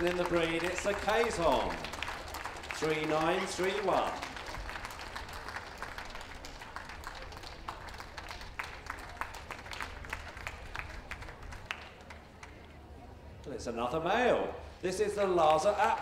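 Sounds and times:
spectators applauding: 0.0 - 12.5.

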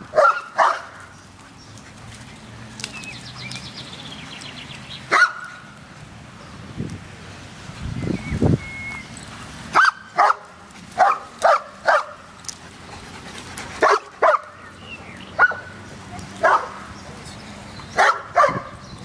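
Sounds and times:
dog barking: 0.1 - 1.0, 5.1 - 5.5, 9.8 - 12.2, 13.8 - 14.6, 16.4 - 16.8, 18.0 - 18.8.

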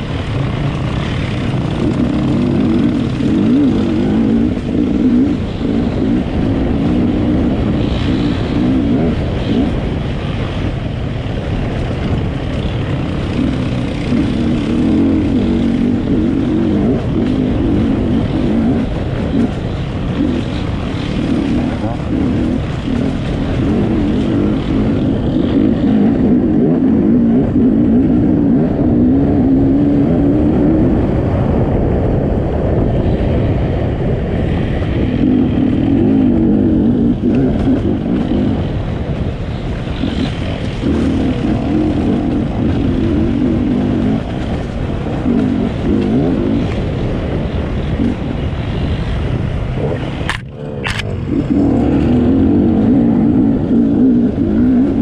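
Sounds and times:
motorcycle engine revving: 0.0 - 31.8, 32.6 - 55.0.

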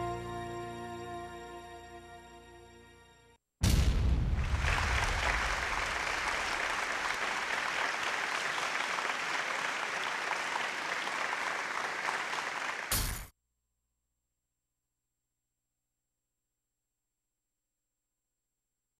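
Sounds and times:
low boom: 3.6 - 6.4
dense crackling noise: 3.6 - 7.8.

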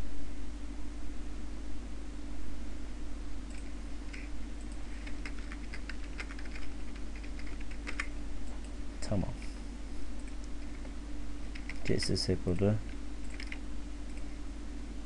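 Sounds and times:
steady low hum: 0.0 - 15.0
keyboard typing clicks: 3.5 - 8.7, 11.5 - 14.3.

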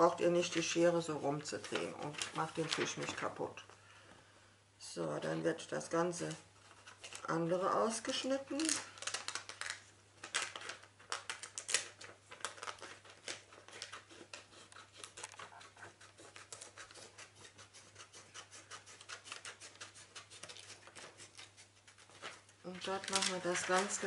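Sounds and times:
scissors snipping paper: 10.4 - 24.0.

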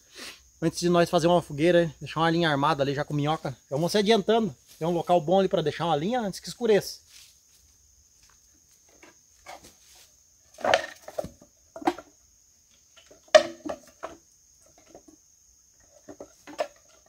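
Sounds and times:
insect trill: 0.0 - 17.0
wood knocking and clattering: 10.6 - 12.1, 12.9 - 15.2, 16.0 - 17.0.

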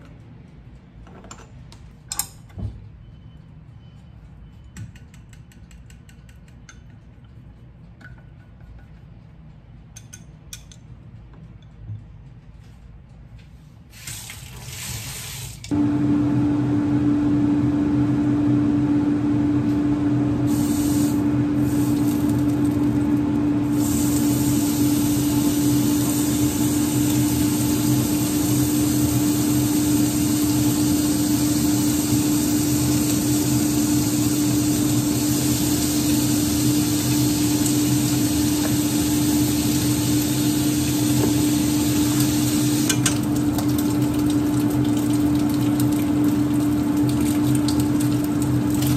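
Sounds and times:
range hood fan humming: 15.4 - 48.9.

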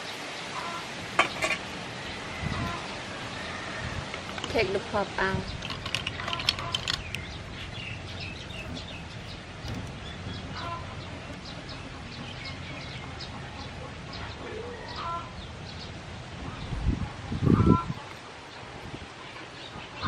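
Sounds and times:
shells clicking in basket: 5.5 - 7.3.

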